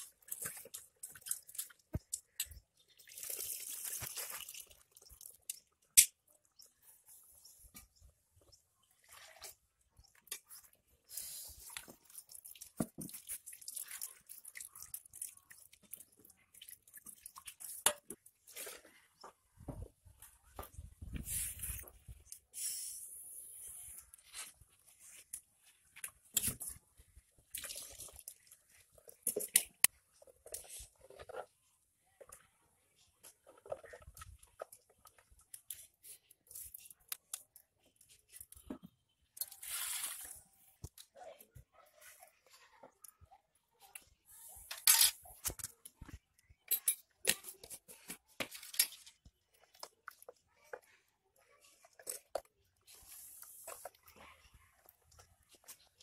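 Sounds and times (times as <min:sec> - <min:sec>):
utensils clinking on clay pot: 0:46.7 - 0:47.8.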